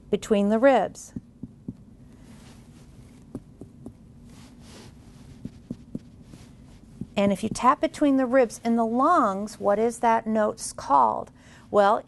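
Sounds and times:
steady low hum: 0.0 - 12.0
soft finger taps on chest: 1.2 - 1.9, 3.2 - 4.0, 5.4 - 7.7.

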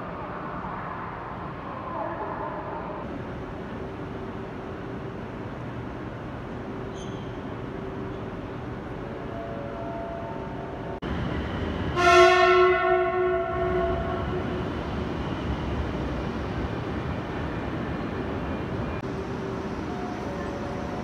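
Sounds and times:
steady hum of trains: 0.0 - 21.0
train horn blast: 12.0 - 14.4.

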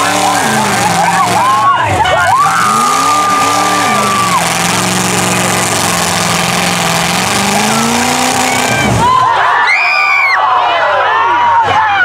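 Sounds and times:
car engine at high revs: 0.0 - 9.2
crowd cheering: 0.0 - 12.0.

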